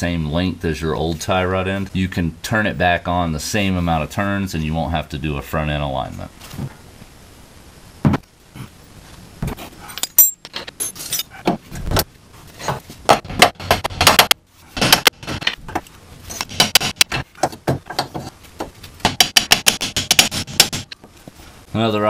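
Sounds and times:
metal hand tools clinking: 9.9s - 11.4s.

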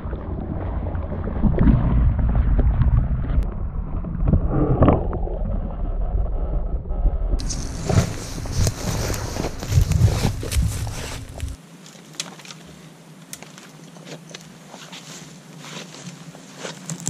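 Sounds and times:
muffled underwater sloshing: 7.4s - 11.6s.

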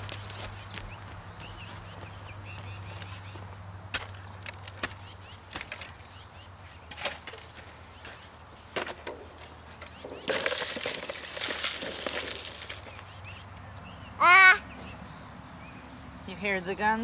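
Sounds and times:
shovel scraping compost in a pot: 6.9s - 13.0s.

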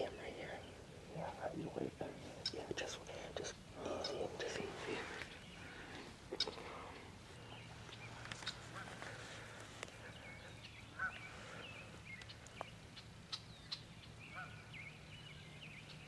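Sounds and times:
bird chirps and honks: 10.1s - 11.8s, 13.3s - 15.0s.

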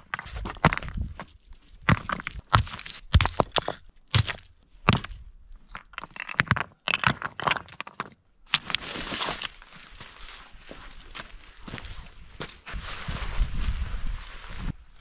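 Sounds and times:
rocks clacking together: 0.0s - 9.6s
rocks crunching scrape: 0.0s - 15.0s.

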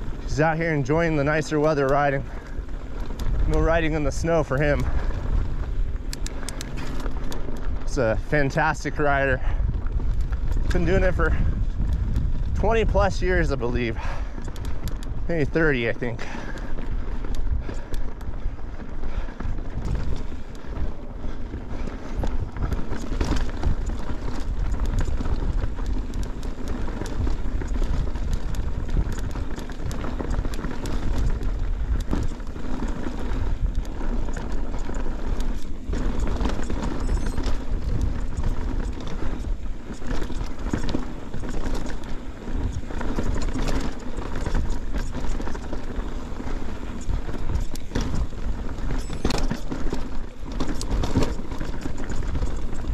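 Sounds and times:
bike rattling and clicking: 0.0s - 52.9s
bike tyres crunching on gravel: 0.0s - 52.9s.

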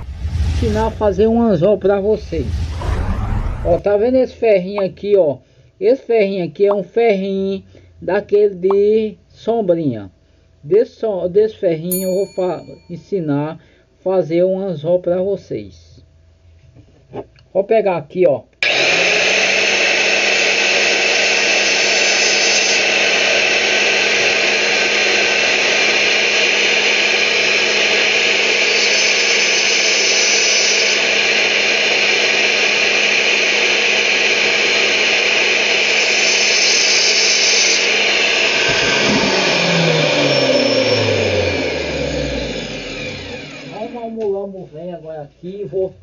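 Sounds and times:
saw motor winding down: 0.0s - 4.0s, 18.6s - 44.2s
circular saw running: 18.6s - 44.2s.

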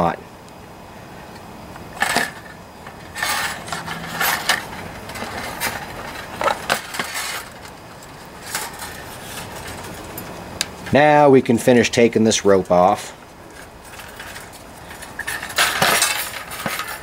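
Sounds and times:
plastic parts clicking and rattling: 2.0s - 10.1s, 13.6s - 17.0s.

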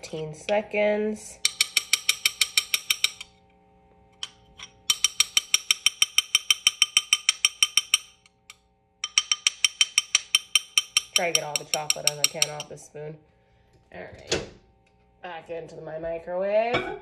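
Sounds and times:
spoon clicking against bowl: 1.4s - 3.3s, 4.2s - 12.7s.

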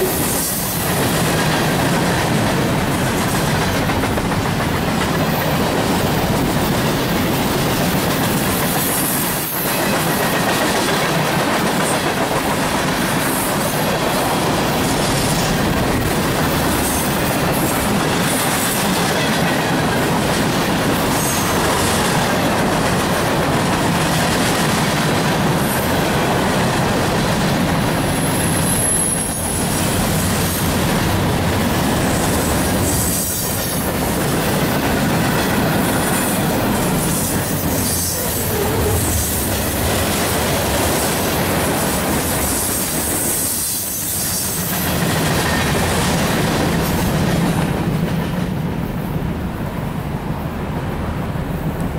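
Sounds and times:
freight train wheels clattering: 0.0s - 49.0s
high wheel squeal: 28.1s - 29.7s.

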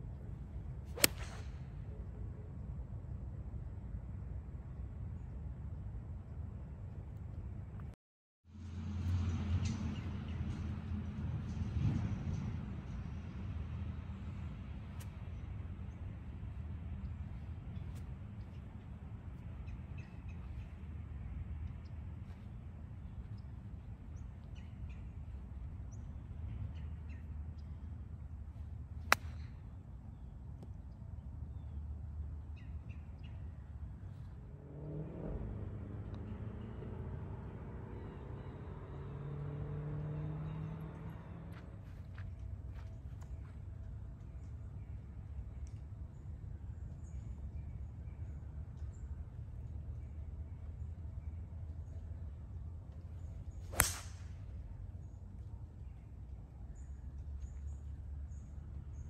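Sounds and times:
low outdoor rumble: 0.0s - 8.0s, 8.6s - 59.0s
golf club hitting ball: 0.9s - 1.7s, 29.1s - 29.5s, 53.7s - 54.4s.

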